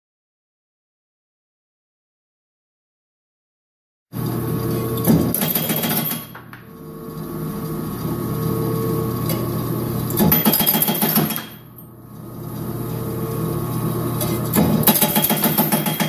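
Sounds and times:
motor hum: 4.2 - 5.6, 6.4 - 10.4, 11.8 - 15.4.

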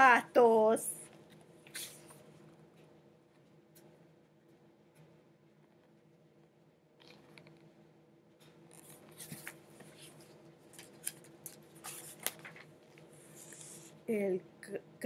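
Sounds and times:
book being handled: 1.1 - 2.5, 8.4 - 13.9.

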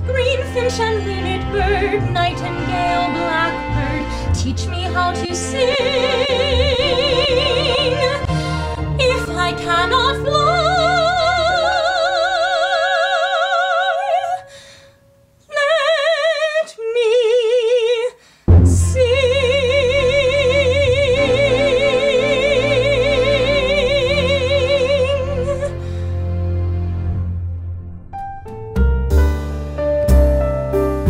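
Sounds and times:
soprano singing with vibrato: 0.0 - 14.6, 15.5 - 18.2, 18.8 - 25.8
musical accompaniment with deep bass: 18.5 - 31.0.

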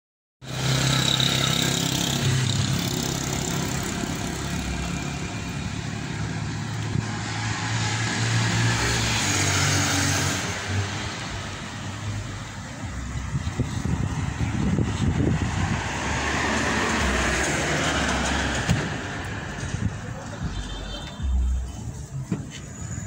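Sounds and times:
car engines humming: 0.4 - 23.0
tyres rushing on road: 0.4 - 23.0
vehicle passing: 0.5 - 20.3.

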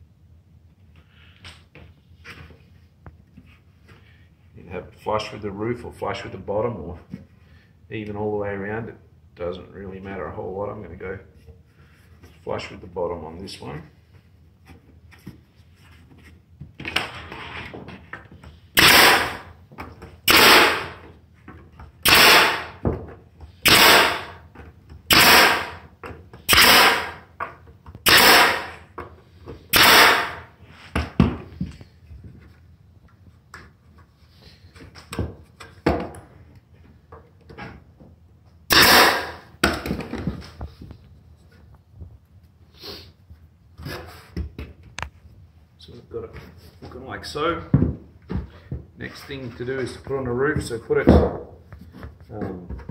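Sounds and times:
nail gun firing into wood: 18.8 - 19.5, 20.2 - 21.1, 22.0 - 22.8, 23.6 - 24.4, 25.1 - 27.3, 28.0 - 28.9, 29.7 - 30.5, 38.7 - 40.0.

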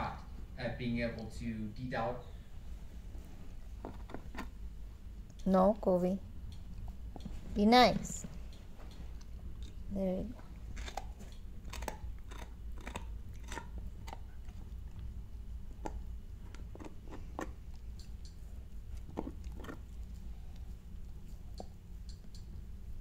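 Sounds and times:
dog gnawing on bone: 3.7 - 4.6, 8.9 - 22.6.

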